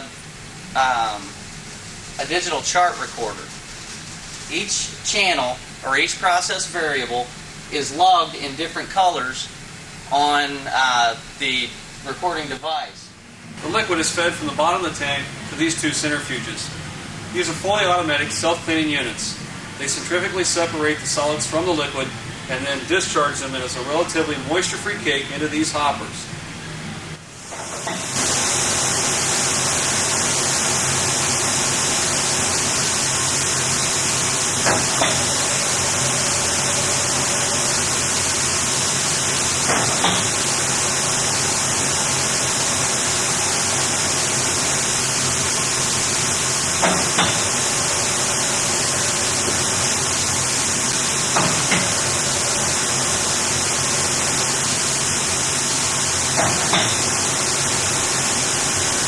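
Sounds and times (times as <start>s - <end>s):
centrifuge hissing: 0.0s - 12.6s, 27.3s - 59.0s.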